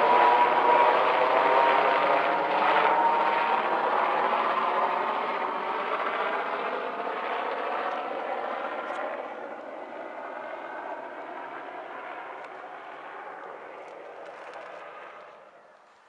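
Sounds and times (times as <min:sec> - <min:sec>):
helicopter flying overhead: 0:00.0 - 0:16.0.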